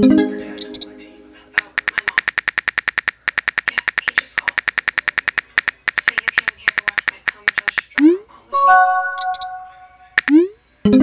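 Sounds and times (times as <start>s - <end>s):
rapid keyboard clicks: 1.6s - 8.0s.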